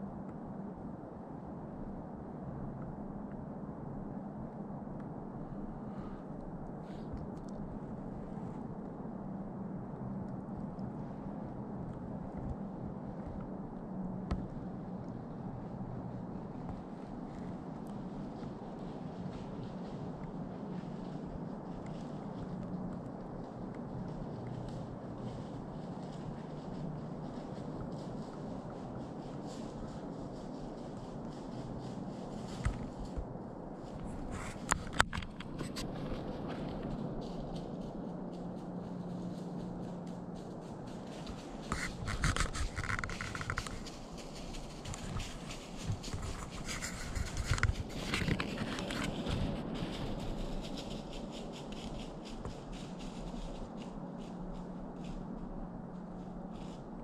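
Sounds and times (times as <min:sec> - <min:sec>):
faint low hum: 0:00.0 - 0:57.0
woodland background hiss: 0:05.3 - 0:09.4, 0:10.7 - 0:57.0
crackling ticks: 0:06.4 - 0:07.7, 0:34.2 - 0:53.6
rubbing and scraping: 0:41.1 - 0:52.9.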